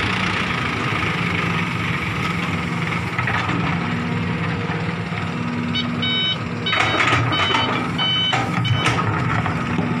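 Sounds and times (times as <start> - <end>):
excavator diesel engine running: 0.0 - 10.0
reversing alarm beeping: 5.7 - 9.2.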